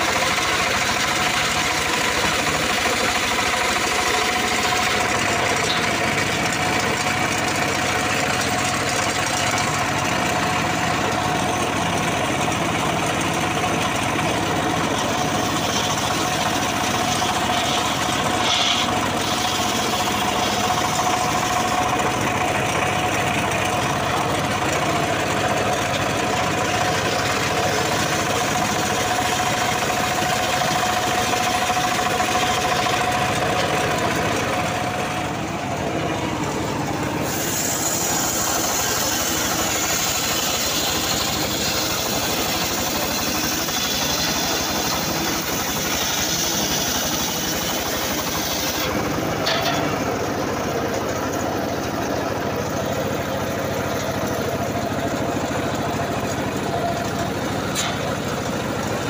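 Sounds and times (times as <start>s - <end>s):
circular saw blade cutting wood: 0.0s - 11.6s, 14.6s - 22.6s, 23.5s - 34.8s, 37.1s - 50.1s
engine running under load: 0.0s - 59.0s.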